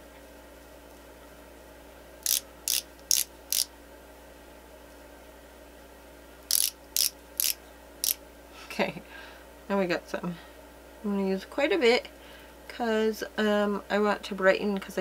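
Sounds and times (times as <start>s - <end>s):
twist barrel clicking: 2.2s - 3.7s, 6.5s - 8.2s.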